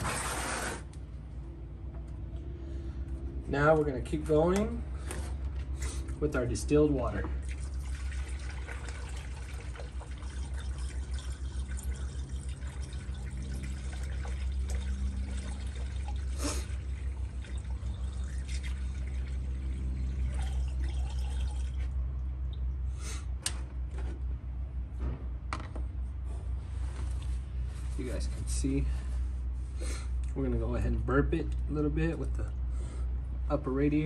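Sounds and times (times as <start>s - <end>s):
water pouring through a funnel: 7.2s - 22.6s.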